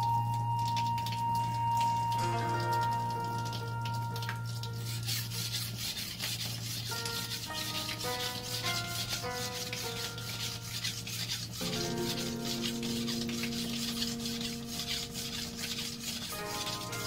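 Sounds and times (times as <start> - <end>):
knife scraping on whetstone: 4.8 - 17.0.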